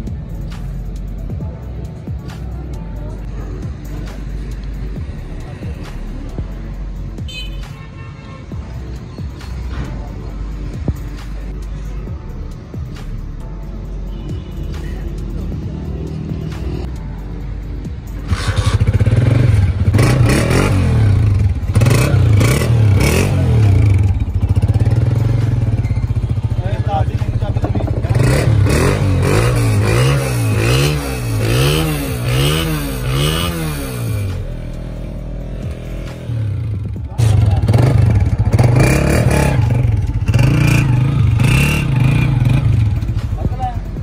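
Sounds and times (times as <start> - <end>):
motorcycle engine revving: 18.2 - 44.0.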